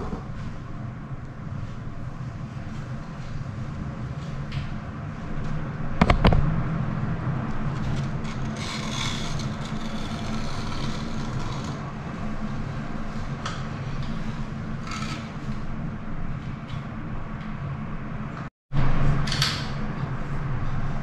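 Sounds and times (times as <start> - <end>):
steady low hum: 0.0 - 21.0
scraping on tile: 7.8 - 11.9.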